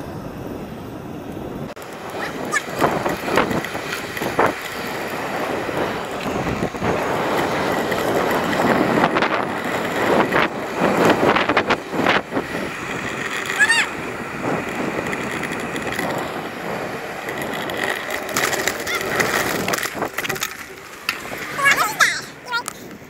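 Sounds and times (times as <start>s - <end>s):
steady rolling rush: 0.0s - 23.0s
wind buffeting microphone: 0.0s - 23.0s
sharp knocks and rattles: 17.2s - 22.0s.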